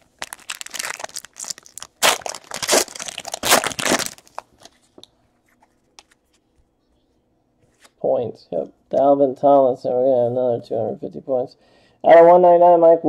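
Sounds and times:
wrapper tearing and crinkling: 0.0 - 4.8.

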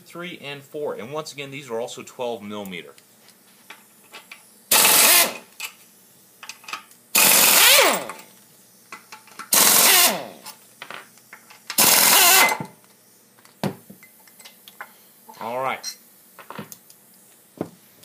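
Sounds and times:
cordless power tool spinning bolts: 4.7 - 5.5, 7.2 - 8.2, 9.5 - 10.4, 11.7 - 12.6.

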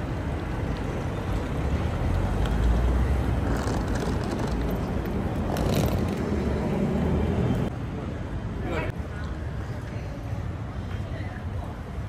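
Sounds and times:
low rumble of traffic: 0.0 - 12.0.

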